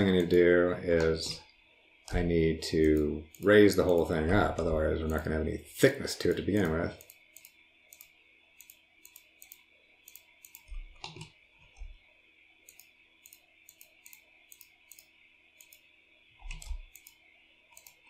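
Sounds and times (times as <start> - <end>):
computer mouse clicking: 2.8 - 4.1, 5.0 - 5.2, 6.2 - 12.0, 12.6 - 18.0.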